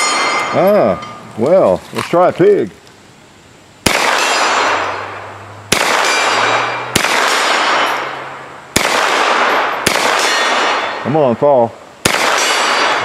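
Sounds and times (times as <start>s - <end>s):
gunshots echoing: 3.8s - 13.0s.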